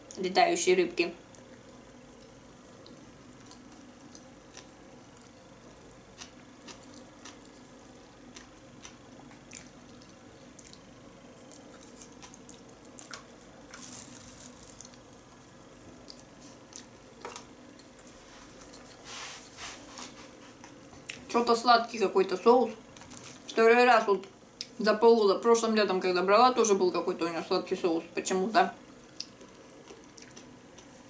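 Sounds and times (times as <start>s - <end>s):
faint low hum: 0.0s - 31.0s
person chewing with mouth clicks: 1.3s - 5.4s, 6.1s - 10.9s, 29.1s - 31.0s.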